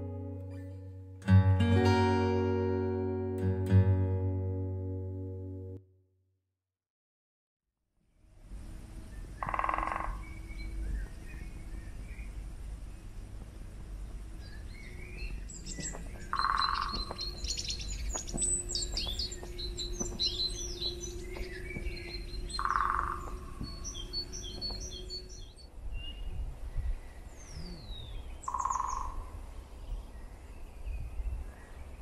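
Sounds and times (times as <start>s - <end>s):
birds trilling: 14.4s - 25.6s
lower bird call: 14.4s - 26.2s, 27.4s - 29.3s.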